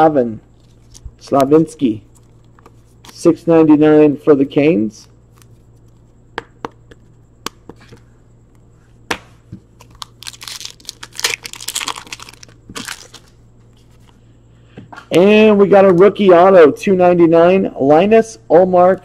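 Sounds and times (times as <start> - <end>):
wrapper torn open and crinkled: 9.8 - 13.3.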